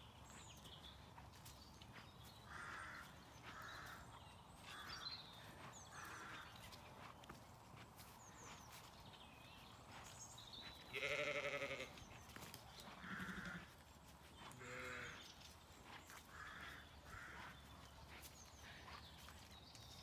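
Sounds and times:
ewes bleating: 10.9s - 12.0s, 13.0s - 13.7s, 14.6s - 15.2s.

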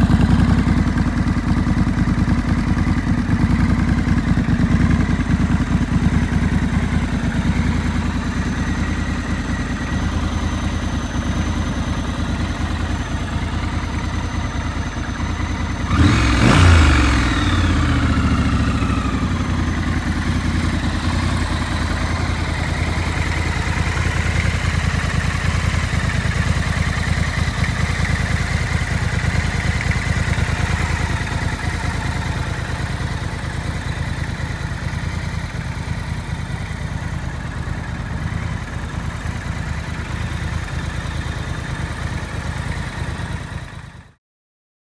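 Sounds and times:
motorcycle engine idling: 0.0s - 44.2s
engine revving: 15.7s - 22.4s.

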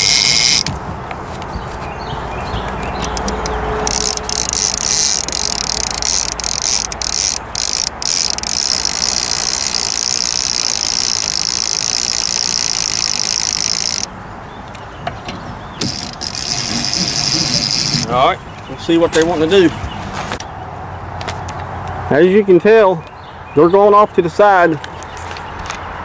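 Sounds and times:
fishing reel clicker ratcheting: 0.0s - 0.7s, 3.3s - 14.1s, 15.9s - 18.0s.

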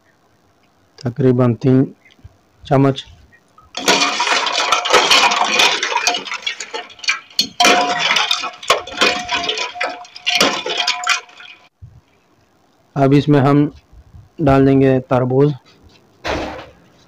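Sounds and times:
ice and ladle clinking in steel bowl: 3.8s - 11.7s.

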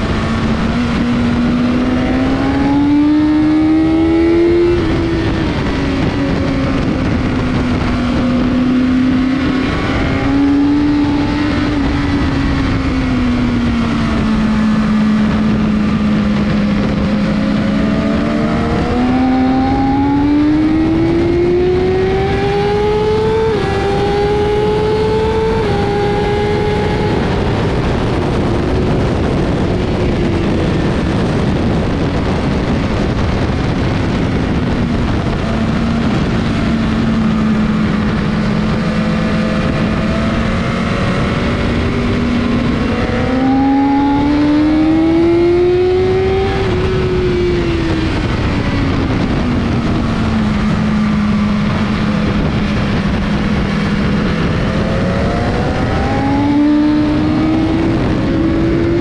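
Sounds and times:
motorcycle engine revving: 0.0s - 59.0s
wind rush: 0.0s - 59.0s.

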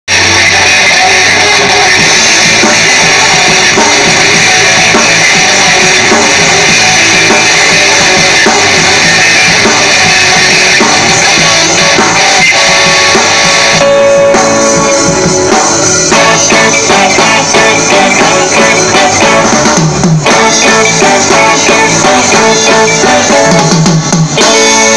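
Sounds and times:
bass guitar: 0.1s - 24.9s
drum kit: 0.1s - 24.9s
electric guitar: 0.1s - 24.9s
saxophone: 0.2s - 19.8s.

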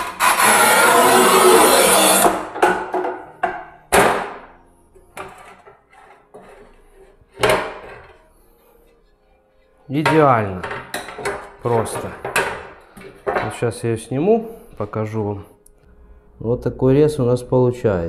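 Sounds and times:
scoring wheel scraping tile: 0.0s - 2.6s.

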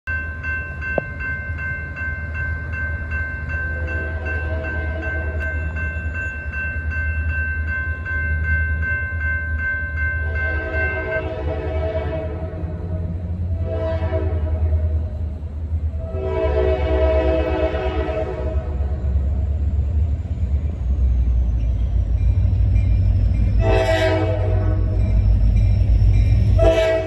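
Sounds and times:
crossing warning bell ringing: 0.1s - 13.6s, 16.3s - 27.0s
locomotive horn: 10.3s - 15.1s, 16.0s - 19.2s, 23.6s - 25.1s, 26.5s - 27.0s.

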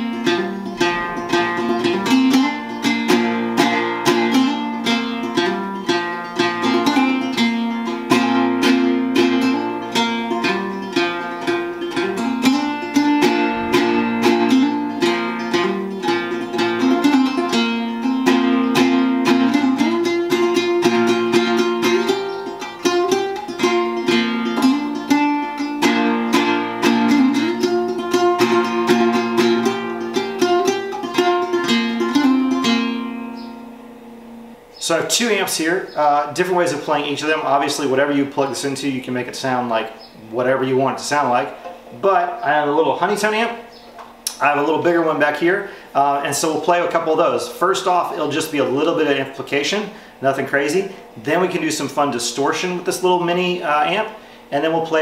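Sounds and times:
low banjo drone note: 0.0s - 7.4s, 8.1s - 34.6s
banjo picked notes: 0.0s - 54.0s.

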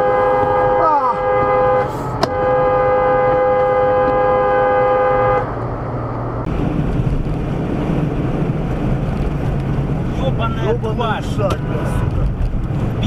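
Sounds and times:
two-tone car horn blast: 0.0s - 5.6s
low engine hum: 0.0s - 13.0s
road noise: 0.0s - 13.0s.

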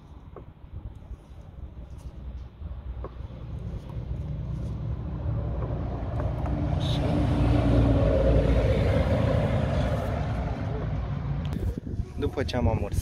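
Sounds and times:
passing vehicle engine rumble: 2.0s - 11.9s.

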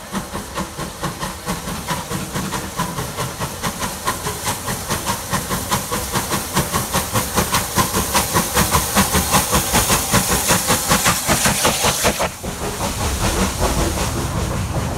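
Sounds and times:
steam hiss: 0.0s - 14.9s
steam locomotive exhaust beats: 0.0s - 14.9s.

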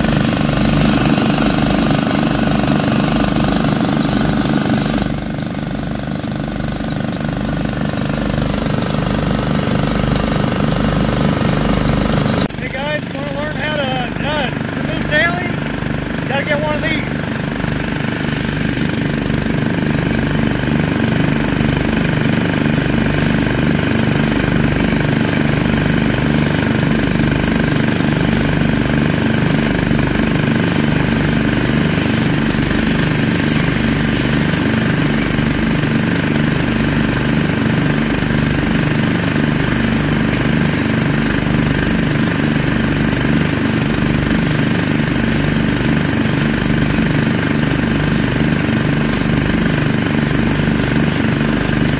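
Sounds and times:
small gasoline engine running: 0.0s - 51.9s.

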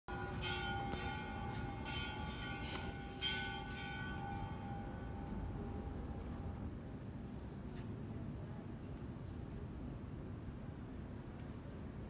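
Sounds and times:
church bell ringing: 0.1s - 6.7s.

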